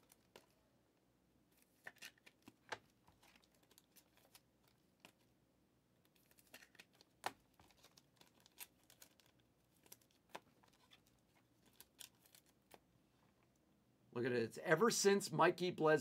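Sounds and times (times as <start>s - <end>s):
wrapper crinkling: 3.1s - 5.2s, 6.1s - 12.8s.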